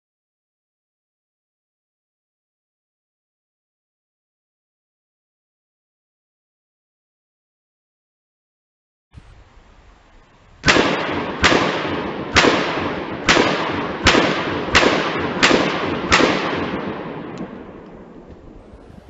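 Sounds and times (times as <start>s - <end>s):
pistol shots echoing: 10.6s - 18.3s.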